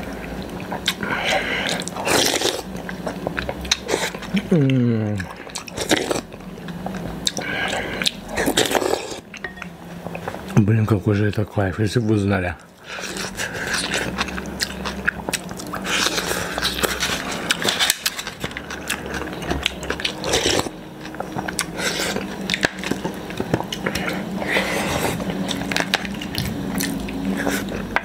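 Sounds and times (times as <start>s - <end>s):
steady low hum: 0.0s - 28.0s
chewing: 0.1s - 10.6s, 12.6s - 28.0s
slurping noodles and soup: 0.8s - 2.7s, 5.2s - 6.2s, 7.2s - 9.2s, 15.7s - 19.4s, 20.0s - 20.7s, 21.6s - 27.9s.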